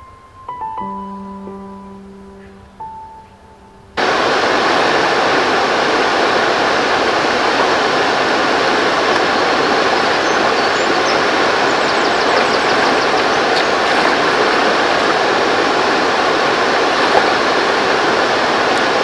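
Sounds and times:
soft piano music: 0.0 - 4.0
river water rushing: 4.0 - 19.0
wind on microphone: 4.0 - 19.0.

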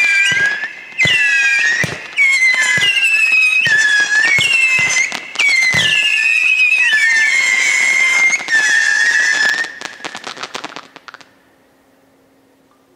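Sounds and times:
firework whistles: 0.0 - 11.4.

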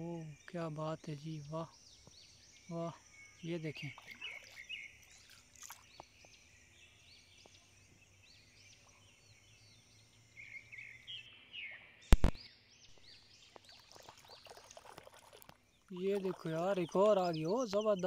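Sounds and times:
birds chirping: 0.0 - 18.0
sharp click: 12.1 - 12.4.

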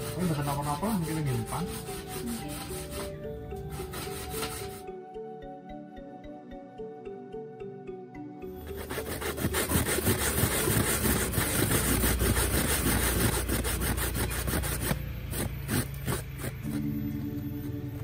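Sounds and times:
coconut grated on metal grater: 0.0 - 3.1, 8.6 - 16.8.

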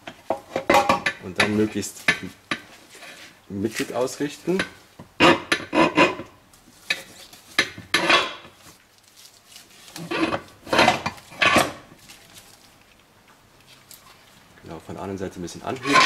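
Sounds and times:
steel gear parts clinking and scraping: 15.7 - 16.0.

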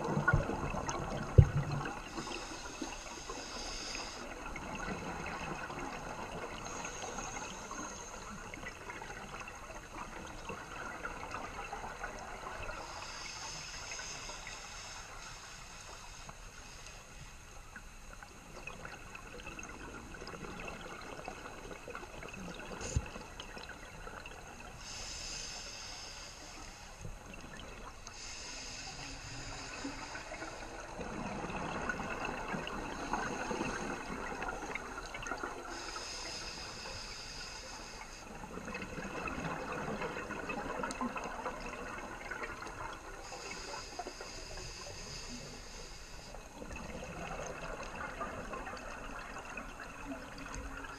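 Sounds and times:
exhaled bubbles gurgling: 0.0 - 15.2, 17.7 - 50.9
scuba regulator breathing: 2.1 - 4.8, 12.8 - 17.4, 24.7 - 27.0, 28.1 - 30.8, 35.7 - 38.3, 43.2 - 46.6.

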